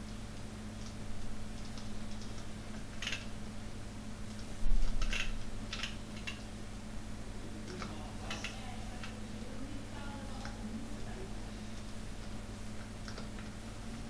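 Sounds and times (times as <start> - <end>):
low electrical hum: 0.0 - 14.0
computer mouse clicks: 0.8 - 3.3, 4.2 - 6.5, 7.7 - 9.2, 11.7 - 13.6.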